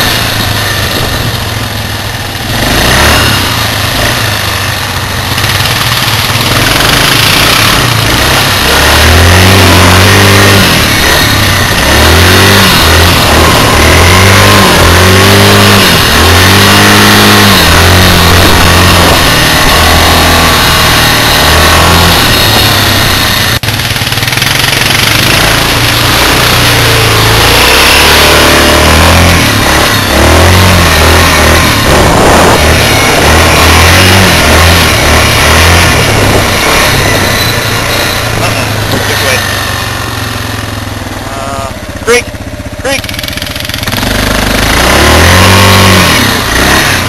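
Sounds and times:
atv engine revving: 0:00.0 - 0:47.0
steady rushing noise: 0:00.0 - 0:47.0.

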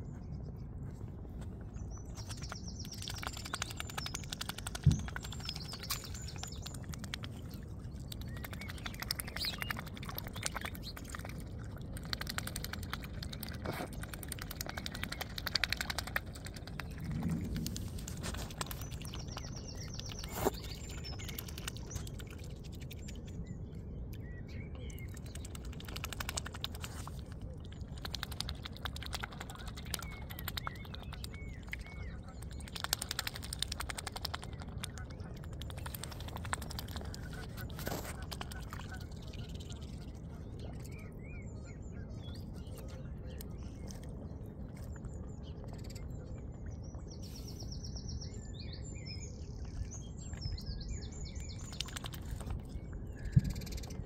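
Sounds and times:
swan bill dabbling in water: 0:01.5 - 0:23.4, 0:24.1 - 0:41.4, 0:51.4 - 0:54.0.

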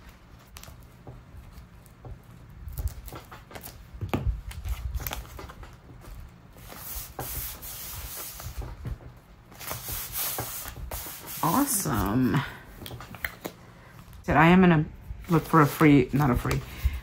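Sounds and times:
hands rubbing paper: 0:06.6 - 0:08.7, 0:09.6 - 0:12.4, 0:15.3 - 0:16.8.

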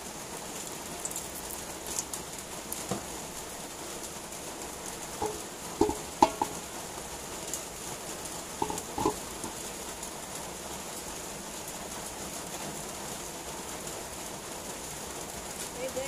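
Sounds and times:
oil hissing in a wok: 0:00.0 - 0:16.0
short hollow knocks: 0:05.2 - 0:06.7, 0:08.6 - 0:09.6.

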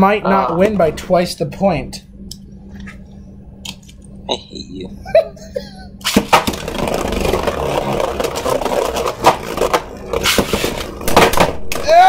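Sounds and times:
spinning tops whirring and scraping: 0:06.0 - 0:11.3.

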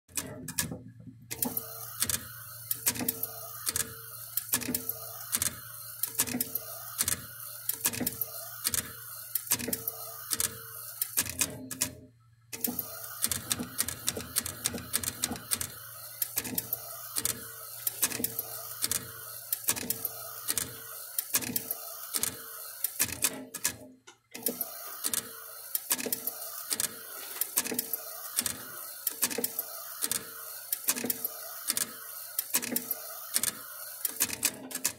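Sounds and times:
printer carriage clicking and whirring: 0:00.1 - 0:12.0, 0:12.6 - 0:34.9.

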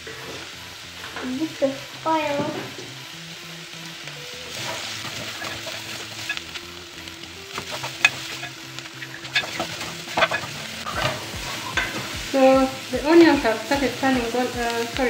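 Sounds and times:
onions sizzling in oil: 0:00.0 - 0:15.0
wooden spoon scraping metal pot: 0:04.5 - 0:06.4, 0:07.5 - 0:12.5.

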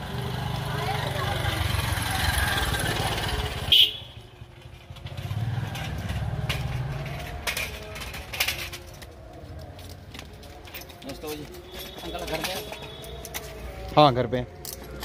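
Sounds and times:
motorcycle engine rumble: 0:00.0 - 0:10.7.

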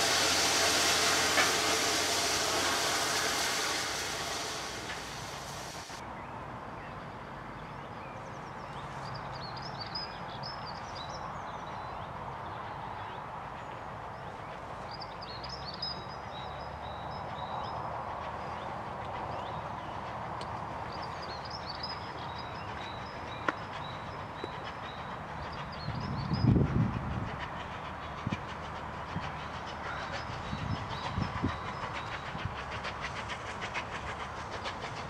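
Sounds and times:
distant steam train rumble: 0:00.0 - 0:06.0, 0:11.6 - 0:35.0
steam locomotive hissing steam: 0:00.0 - 0:06.0, 0:17.1 - 0:35.0.

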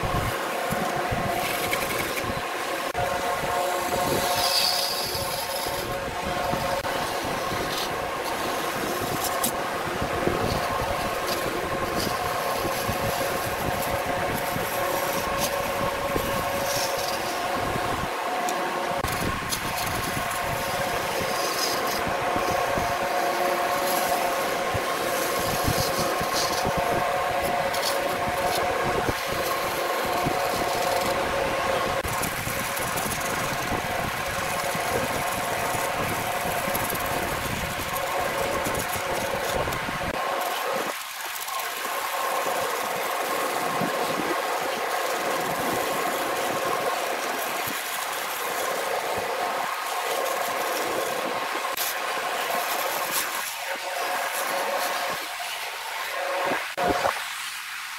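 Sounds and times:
turning tool scraping wood: 0:00.0 - 0:57.1
lathe motor whine: 0:00.0 - 0:57.9.

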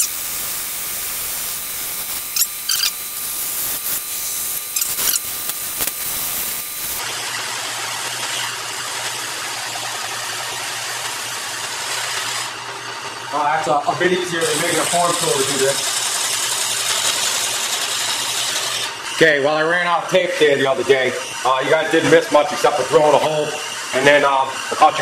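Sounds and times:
sandpaper hissing on spinning wood: 0:00.0 - 0:07.0, 0:13.3 - 0:19.0
lathe running with high tone: 0:00.0 - 0:25.0
tool scraping spinning wood: 0:00.0 - 0:25.0.

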